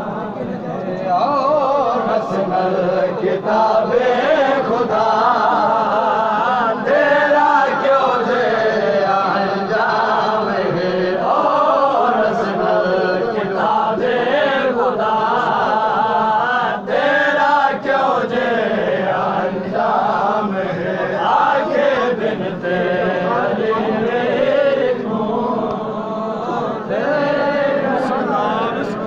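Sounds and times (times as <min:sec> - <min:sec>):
men chanting in unison: 0:00.0 - 0:29.0
lead voice on microphone: 0:20.3 - 0:29.0.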